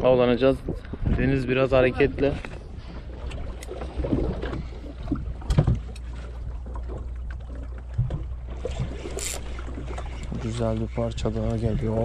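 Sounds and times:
wind and water against hull: 0.0 - 12.0
knocks on boat: 5.4 - 5.9.

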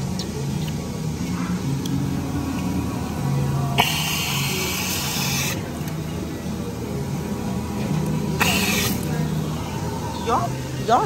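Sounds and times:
soda dispenser hissing spray: 3.8 - 5.6, 8.4 - 9.2.

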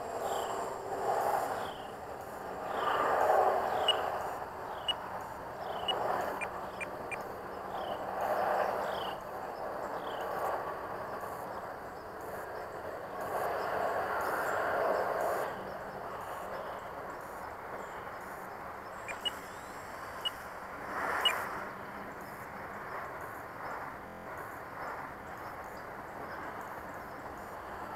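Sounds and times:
model plane motor and propeller: 0.0 - 27.9
short high chirps: 19.1 - 19.4.

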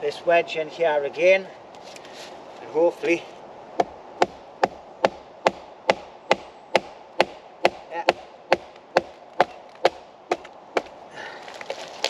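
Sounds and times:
hatchet hammering wooden wedge: 3.8 - 10.9.

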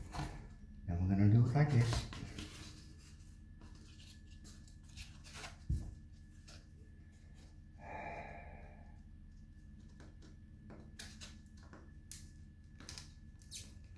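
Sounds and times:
soft breathy sigh: 7.8 - 9.0.

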